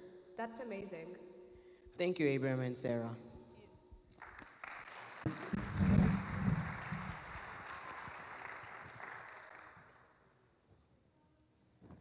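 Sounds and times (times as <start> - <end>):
audience applauding: 4.2 - 10.2.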